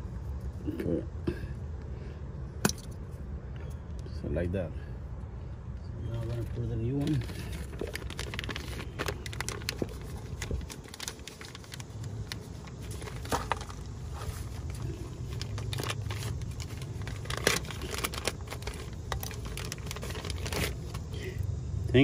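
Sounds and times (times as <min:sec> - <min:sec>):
steady low background hum: 0:00.0 - 0:22.0
plastic packaging crinkling: 0:06.3 - 0:21.2.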